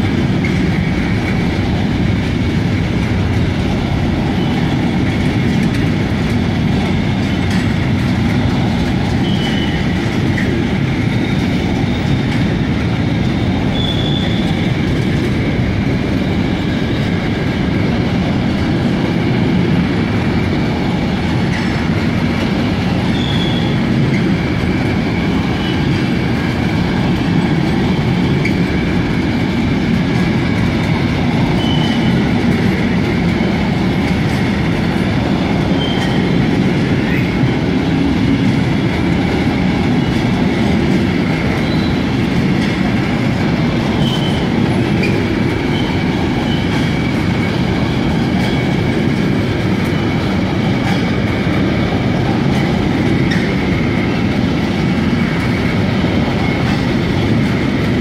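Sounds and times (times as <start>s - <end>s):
train wheels rumbling on rails: 0.0s - 58.0s
high wheel squeals: 9.1s - 10.0s, 13.6s - 14.8s, 23.0s - 23.8s, 31.5s - 32.3s, 35.7s - 36.4s, 41.5s - 42.1s, 43.9s - 46.9s.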